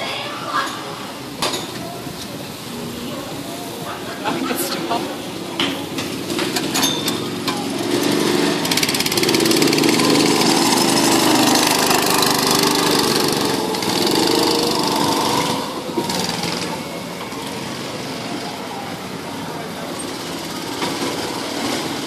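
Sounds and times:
go-kart engine passing: 6.1 - 22.0.

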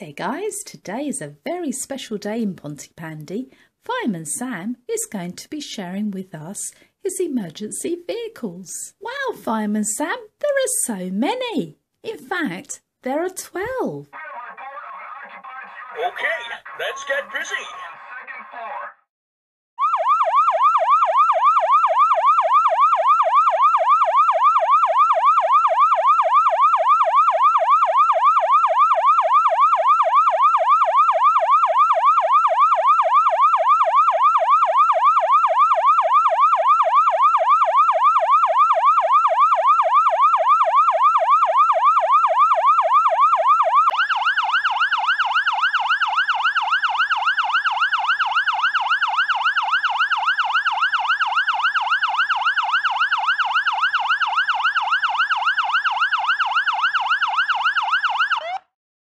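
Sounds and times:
electronic siren sweeping: 19.8 - 58.7
rougher siren: 19.8 - 58.8.

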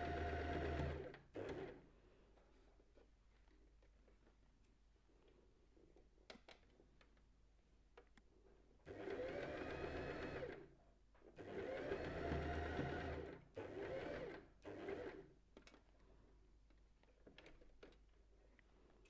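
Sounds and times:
sewing machine motor whining: 0.0 - 1.7, 8.9 - 10.6, 11.4 - 15.2.

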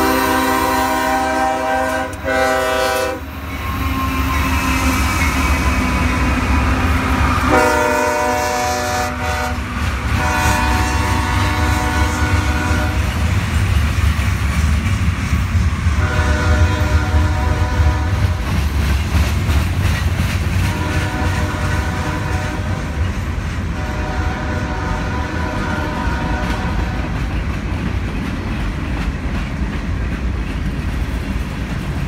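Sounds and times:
locomotive horn chord: 0.0 - 4.3, 7.4 - 13.2, 16.0 - 18.4, 20.7 - 23.0, 23.7 - 27.0
wheels clacking over rail joints: 26.3 - 32.0.

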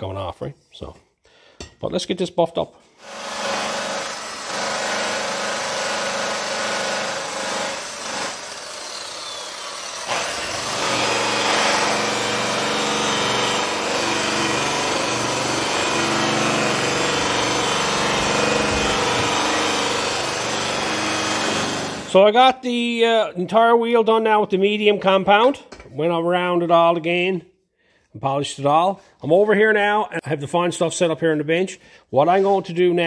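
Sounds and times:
angle grinder buffing metal: 7.0 - 22.2.

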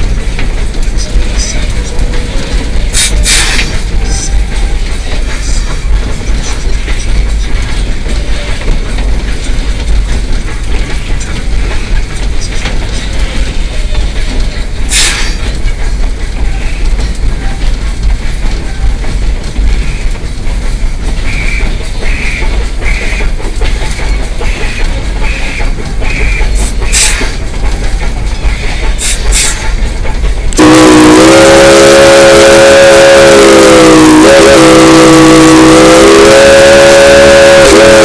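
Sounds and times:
steam locomotive rumble and clatter: 0.0 - 38.0.

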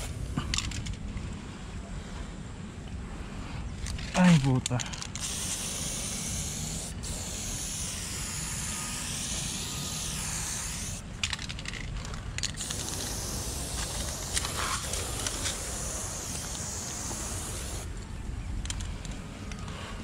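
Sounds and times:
spray paint can hissing: 5.1 - 11.1, 12.5 - 17.9.

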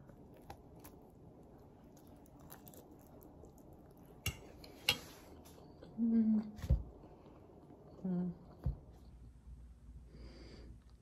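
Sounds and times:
faint chewing: 0.0 - 9.1
cutlery scraping: 4.2 - 5.2.

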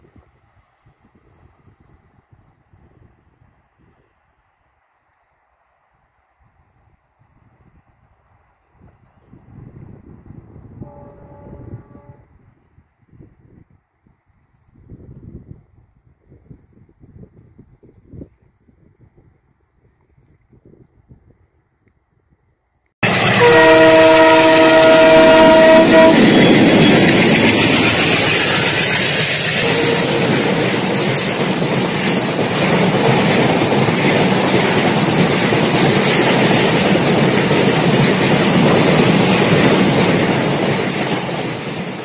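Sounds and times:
train horn chord: 10.8 - 12.4, 23.0 - 28.7, 29.5 - 31.3
train running past: 23.0 - 42.0.

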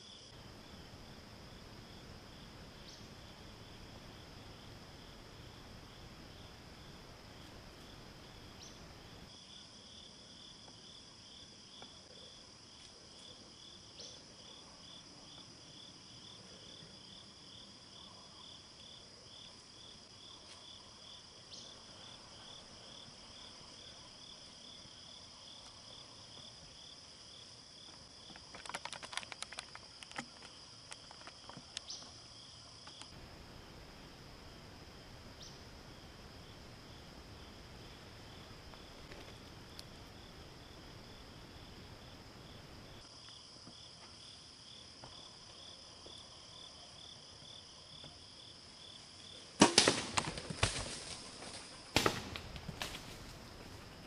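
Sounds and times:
insects chirping: 0.0 - 54.0
sharp crackling ticks: 28.3 - 31.9.

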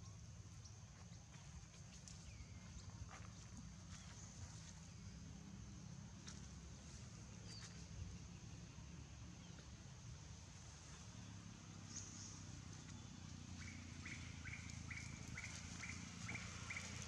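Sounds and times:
high-pitched insect hum: 9.9 - 17.0.

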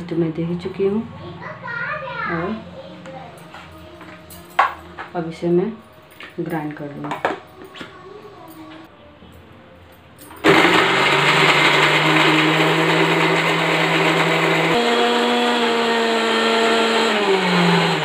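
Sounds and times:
electric mixer grinder whining: 10.4 - 18.0.

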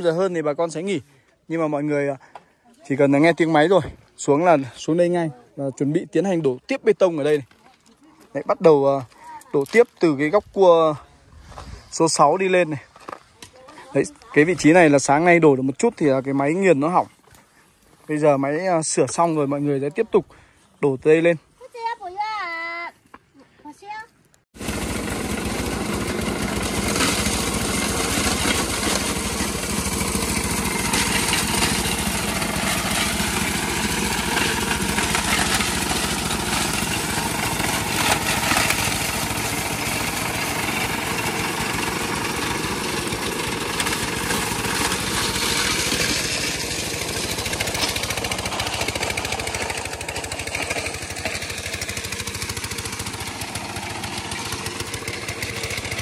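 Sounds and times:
construction machine engine running: 24.6 - 56.0.

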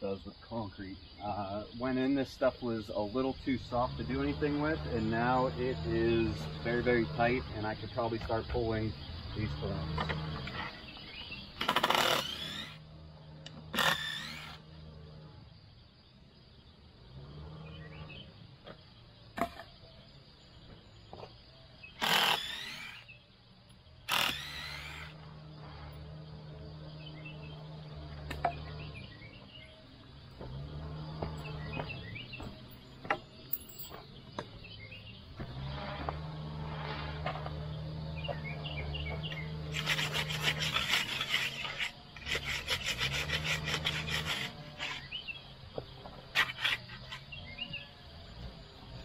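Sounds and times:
wood and nails screeching: 3.2 - 15.3, 21.9 - 23.2, 24.0 - 34.5, 35.3 - 48.0.

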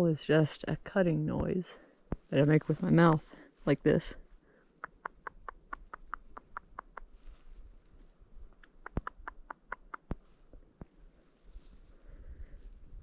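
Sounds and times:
sharp clicks of squirrel call: 4.8 - 7.2, 8.5 - 10.2.

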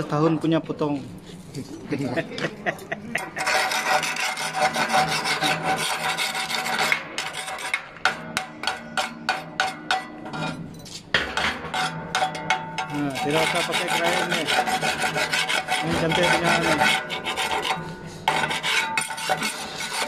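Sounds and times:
steel bar scraping steel plate: 3.2 - 20.0.

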